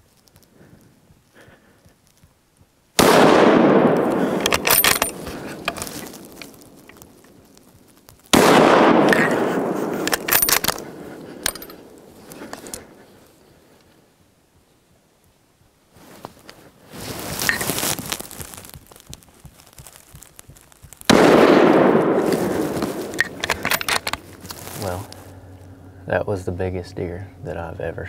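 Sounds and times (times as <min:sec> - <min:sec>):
rifle shots echoing: 0:03.0 - 0:06.4, 0:08.3 - 0:12.2, 0:21.1 - 0:24.4.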